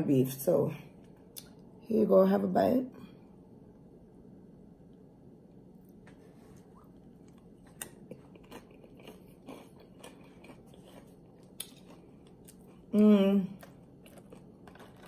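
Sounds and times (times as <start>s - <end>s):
faint low hum: 0.0s - 15.0s
chewing crunchy chips: 6.8s - 15.0s.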